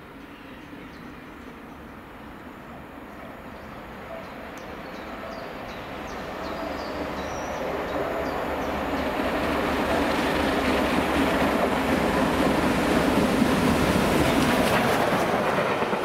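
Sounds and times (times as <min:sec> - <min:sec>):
steam locomotive hauling train: 0:00.0 - 0:16.0.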